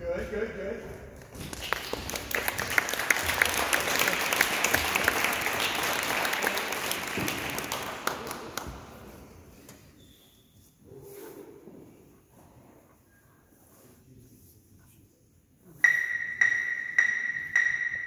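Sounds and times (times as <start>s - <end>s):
audience applauding: 1.4s - 8.8s.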